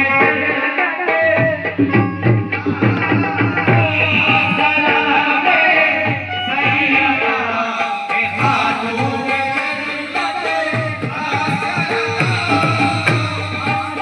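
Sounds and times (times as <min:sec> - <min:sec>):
chorus singing: 0:00.0 - 0:14.0
harmoniums: 0:00.0 - 0:14.0
man singing lead: 0:00.0 - 0:14.0
tabla: 0:00.0 - 0:14.0.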